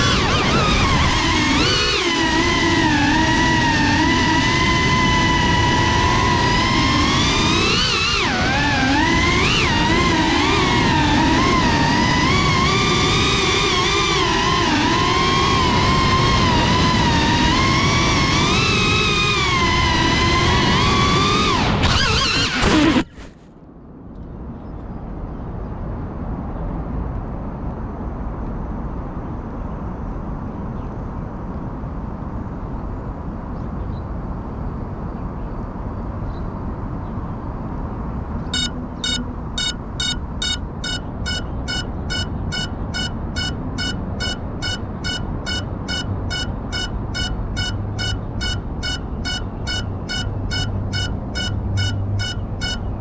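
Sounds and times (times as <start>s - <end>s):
outdoor rumble: 0.0s - 24.9s, 26.8s - 53.0s
shrill drone beeper: 38.5s - 53.0s.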